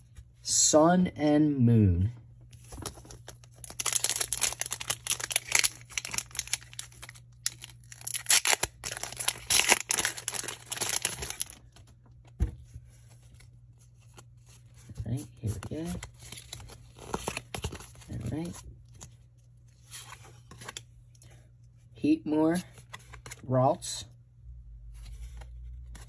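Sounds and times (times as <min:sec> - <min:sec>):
foil wrapper crinkling and tearing: 0:02.8 - 0:11.8.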